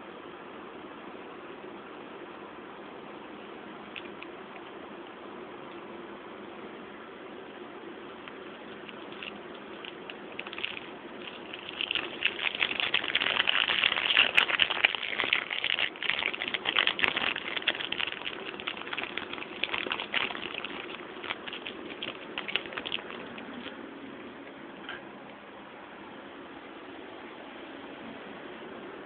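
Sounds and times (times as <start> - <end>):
plastic packaging crinkling: 8.5 - 23.8.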